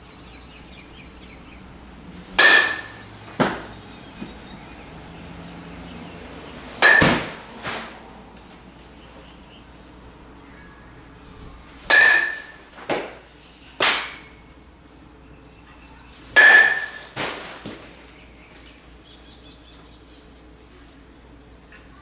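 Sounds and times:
metal bat hitting ball: 2.4s - 3.8s, 6.8s - 8.0s, 11.9s - 13.2s, 13.8s - 14.4s, 16.4s - 17.5s.

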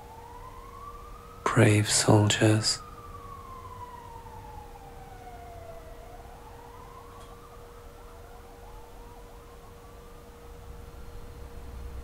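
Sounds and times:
steady high hum: 1.4s - 2.8s.

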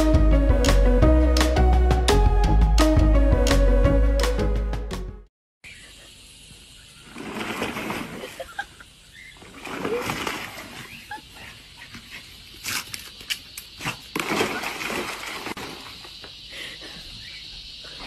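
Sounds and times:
dog splashing in water: 7.1s - 8.4s, 9.4s - 11.0s, 13.8s - 16.1s.

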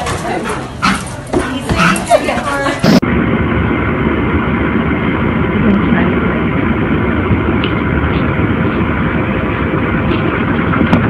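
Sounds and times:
loud rushing noise: 2.8s - 11.0s.

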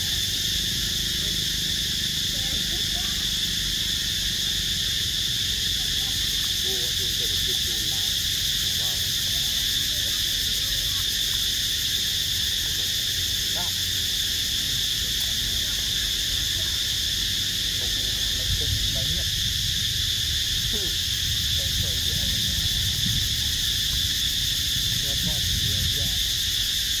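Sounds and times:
insect buzzing: 0.0s - 27.0s
low rumble: 16.1s - 26.6s.

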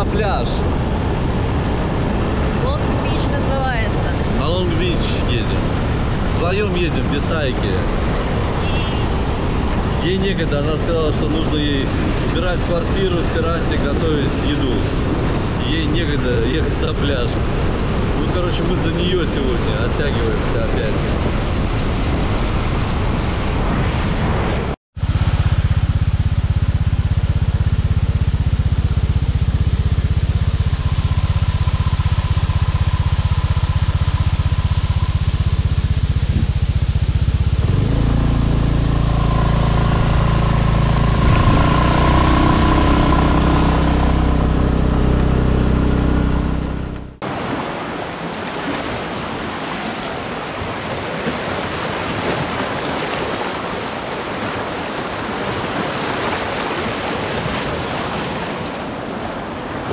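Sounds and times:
motorbike engine droning: 0.0s - 16.4s, 25.0s - 47.5s
wind on microphone: 20.9s - 47.8s.

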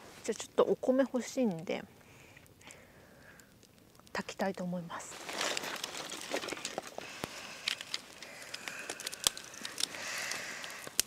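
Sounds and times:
packaging rustling: 5.1s - 11.0s.

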